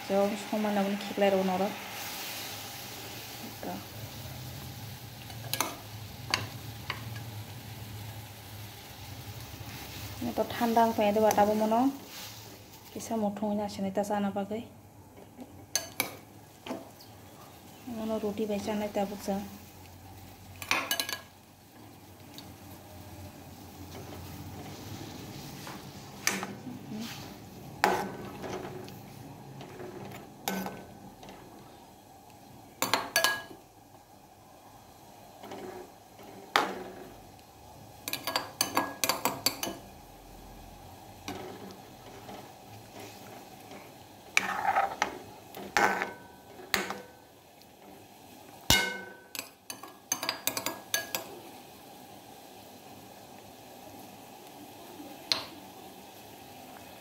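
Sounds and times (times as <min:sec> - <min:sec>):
metal ladle scraping metal pan: 0:41.3 - 0:46.2.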